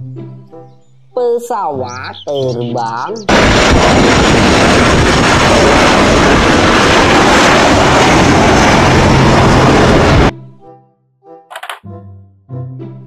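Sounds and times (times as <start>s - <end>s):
aircraft engine noise: 3.2s - 10.3s.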